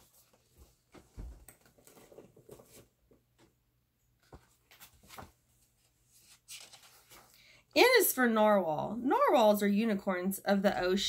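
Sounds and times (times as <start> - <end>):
book being handled: 0.0 - 3.5, 4.2 - 7.4.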